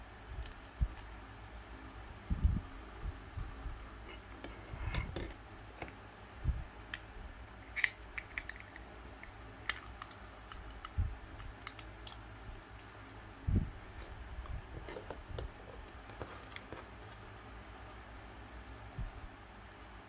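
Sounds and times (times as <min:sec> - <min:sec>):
plastic parts clicking and tapping: 0:07.7 - 0:13.4.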